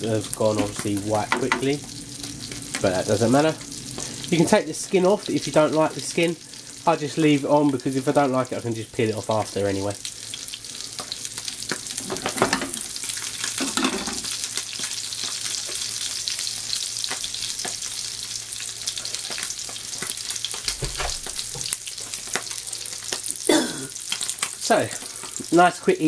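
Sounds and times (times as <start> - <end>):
fish sizzling in frying pan: 0.0 - 26.0.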